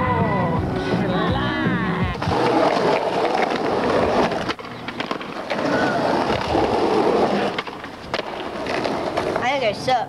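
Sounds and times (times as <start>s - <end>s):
skateboard wheels rolling on asphalt: 2.1s - 10.0s
skateboard clacking on ground: 2.2s - 10.0s.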